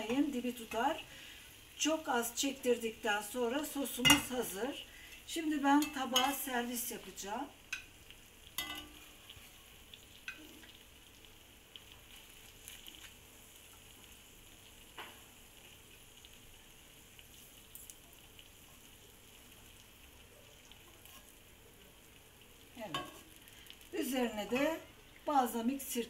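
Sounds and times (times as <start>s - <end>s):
seafood sizzling in oil: 0.0s - 26.0s
metal tongs clicking on pan: 5.7s - 6.5s, 7.7s - 8.0s, 8.6s - 9.0s, 10.2s - 10.5s, 22.9s - 23.2s.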